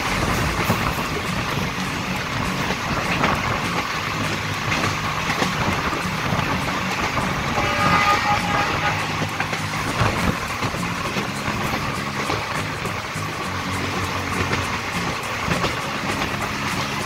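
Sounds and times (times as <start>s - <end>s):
train wheels rumbling on rails: 0.0s - 17.0s
wind rushing: 0.0s - 17.0s
brief high tone: 7.6s - 9.4s.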